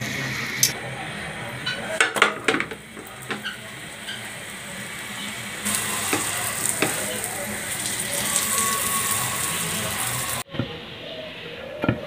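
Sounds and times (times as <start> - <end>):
flatbread sizzling in butter: 2.5 - 10.4.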